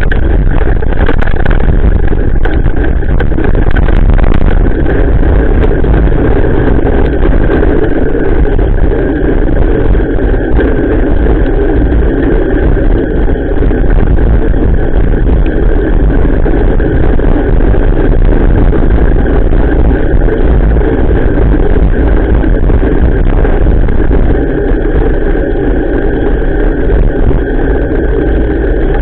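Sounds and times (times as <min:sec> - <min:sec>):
raindrops ticking on camera: 0:00.0 - 0:08.6
bicycle tyres rumbling on wet road: 0:00.0 - 0:29.0
wind buffeting microphone: 0:00.0 - 0:29.0.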